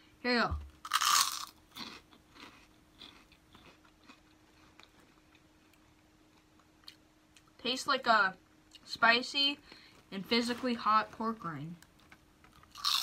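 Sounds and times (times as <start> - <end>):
pork rind crunching: 0.8 - 5.4, 12.5 - 13.0.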